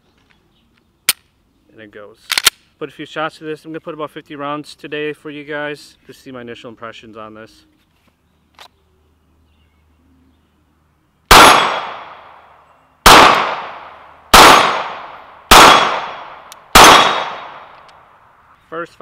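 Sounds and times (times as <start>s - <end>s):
pistol shots with echo: 11.3s - 12.4s, 13.0s - 17.8s.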